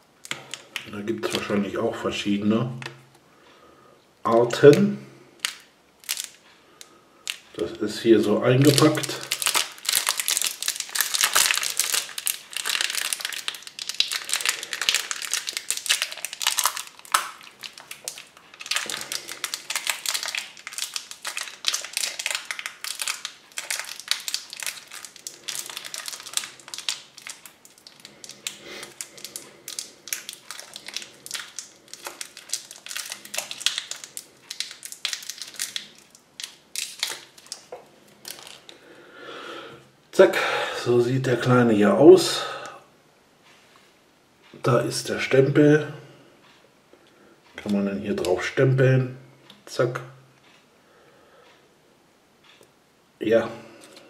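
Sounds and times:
plastic wrapper crinkling: 0:00.0 - 0:02.1, 0:04.3 - 0:38.8, 0:53.7 - 0:54.0.

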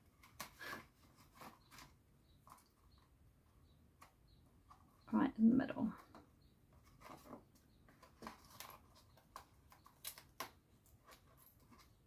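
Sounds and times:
cardstock rustling and tapping: 0:06.0 - 0:12.0.

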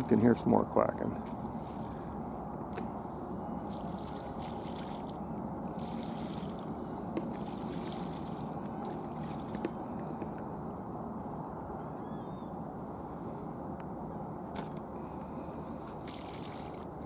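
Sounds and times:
water on a marsh: 0:00.0 - 0:17.0
wind: 0:00.0 - 0:17.0.

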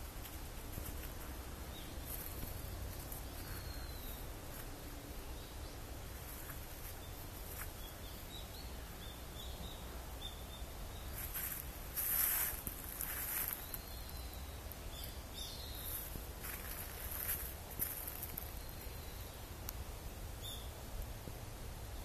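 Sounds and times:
faint bird chirps: 0:01.7 - 0:11.6
footsteps crunching dry leaves: 0:11.1 - 0:13.9, 0:15.8 - 0:18.6.

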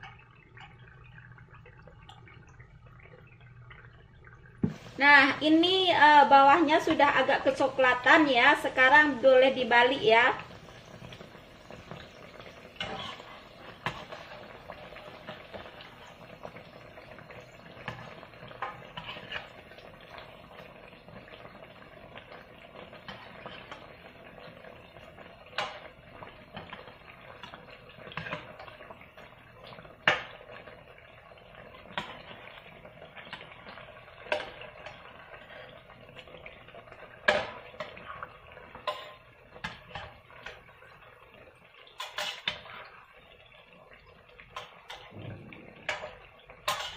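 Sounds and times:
fritters sizzling in hot oil: 0:00.0 - 0:46.9
metal spatula scraping pot: 0:12.8 - 0:14.4, 0:17.8 - 0:19.7, 0:42.0 - 0:42.9, 0:44.5 - 0:46.9.

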